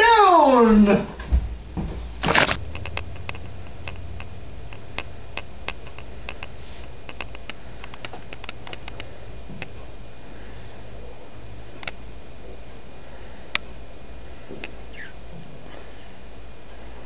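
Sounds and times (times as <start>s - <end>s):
low steady hum: 0.0s - 17.0s
light irregular clicks: 2.7s - 9.8s.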